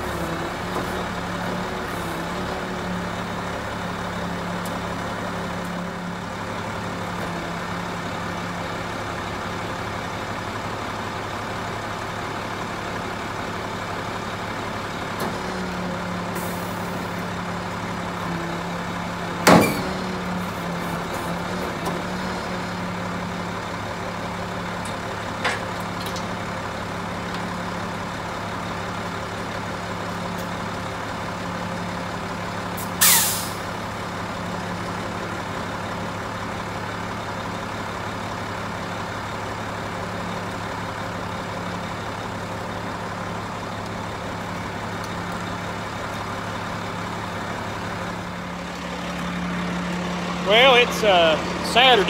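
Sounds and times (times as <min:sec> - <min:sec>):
diesel truck engine idling: 0:00.0 - 0:52.0
compressed air hiss: 0:33.0 - 0:33.6.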